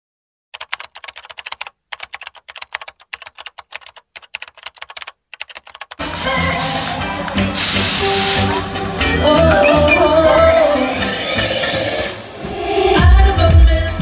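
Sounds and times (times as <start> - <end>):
keyboard typing clicks: 0.6 - 6.0
loud live stage music: 6.0 - 14.0.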